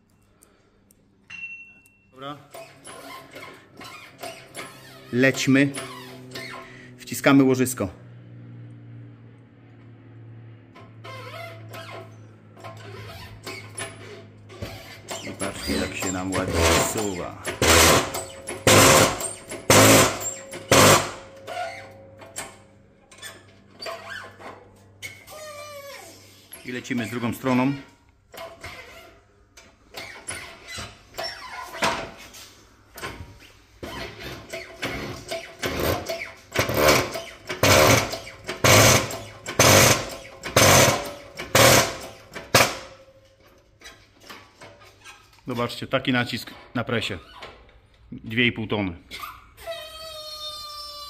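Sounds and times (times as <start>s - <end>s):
shop press bursts: 15.2s - 21.4s, 35.0s - 42.9s.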